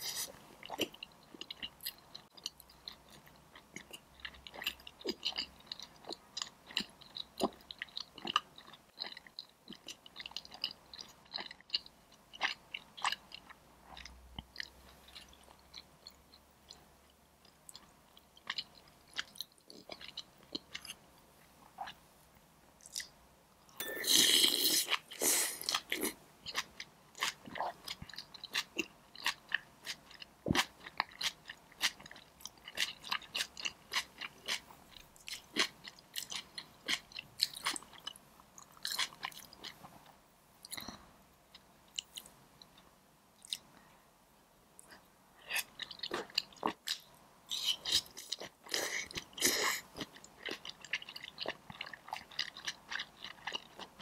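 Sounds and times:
chewing with wet mouth clicks: 45.5s - 54.0s.

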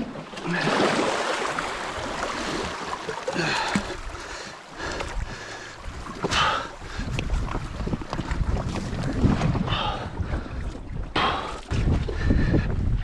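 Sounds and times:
water washing over rocks: 0.0s - 9.9s.

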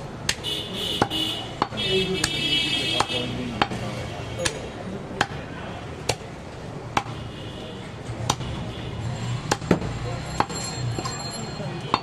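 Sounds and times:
cleaver chopping meat and bone: 0.2s - 0.4s, 1.0s - 7.2s, 8.1s - 8.7s, 9.4s - 11.1s.

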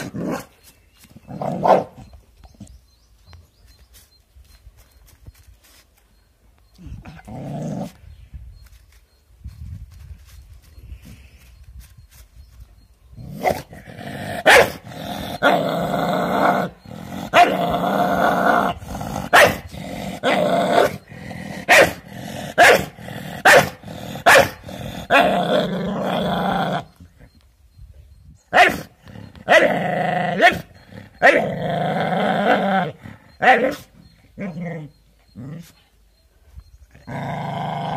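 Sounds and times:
dog growling: 13.4s - 27.0s
dog barking sharply: 22.6s - 24.6s.

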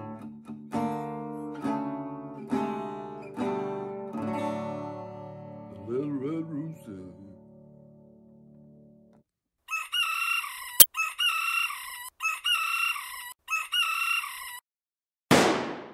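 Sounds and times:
rooster crowing: 9.7s - 14.4s.

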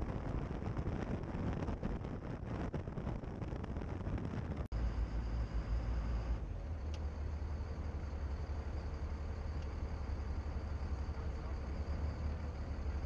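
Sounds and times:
wind on microphone: 0.0s - 4.7s
steady low hum: 0.0s - 13.0s
boat engine: 4.7s - 13.0s.

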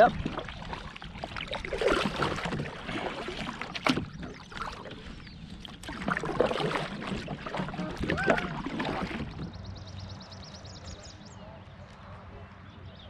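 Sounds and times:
kayak paddle splashing in water: 0.0s - 9.8s.

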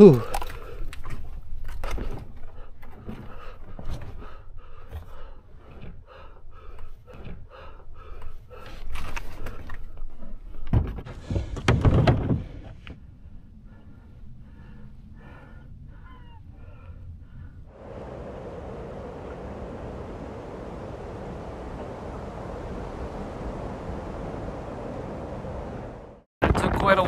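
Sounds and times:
person breathing hard: 2.4s - 9.9s, 12.4s - 17.8s
loud rush of noise: 17.7s - 26.3s.

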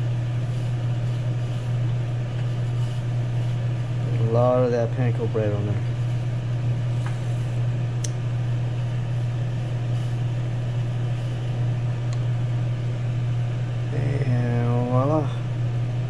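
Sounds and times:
fan motor humming: 0.0s - 16.0s.

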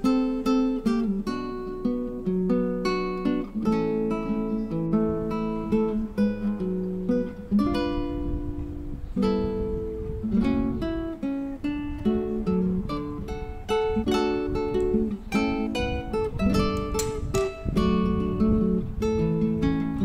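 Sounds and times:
acoustic guitar music: 0.0s - 20.0s.

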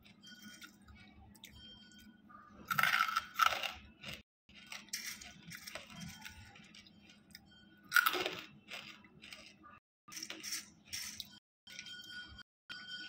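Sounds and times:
chewing: 0.0s - 1.6s, 2.6s - 11.4s
crunching between teeth: 2.7s - 11.4s.

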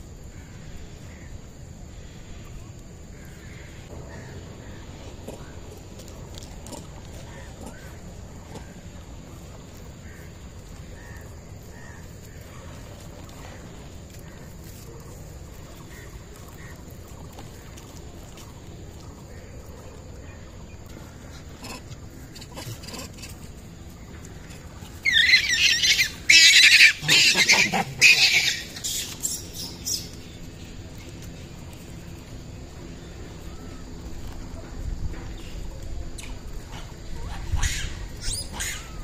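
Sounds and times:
monkey shrieking: 21.6s - 23.5s, 25.0s - 30.0s, 37.2s - 39.0s.

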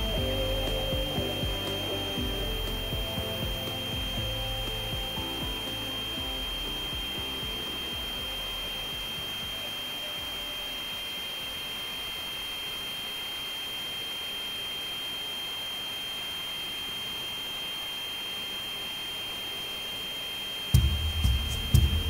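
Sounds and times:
high-pitched whine: 0.0s - 22.0s.

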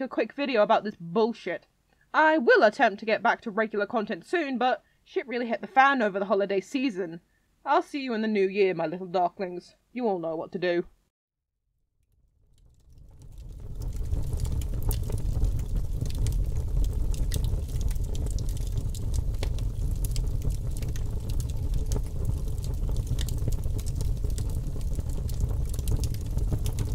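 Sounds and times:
fire crackling and popping: 12.0s - 26.9s.

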